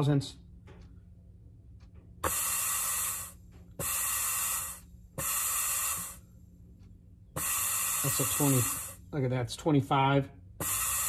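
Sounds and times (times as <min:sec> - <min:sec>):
compressed air hissing from nozzle: 0:02.2 - 0:06.3, 0:07.4 - 0:09.1, 0:10.6 - 0:11.0.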